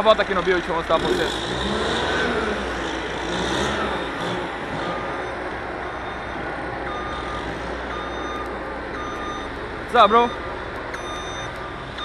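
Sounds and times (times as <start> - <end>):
diesel machinery rumbling: 0.0 - 12.0
reversing alarm beeping: 4.7 - 12.0.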